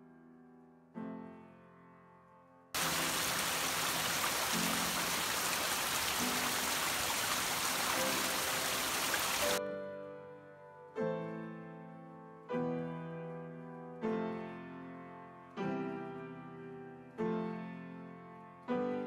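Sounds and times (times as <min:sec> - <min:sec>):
slow piano chords: 0:00.0 - 0:19.0
water splashing over rocks: 0:02.8 - 0:09.6.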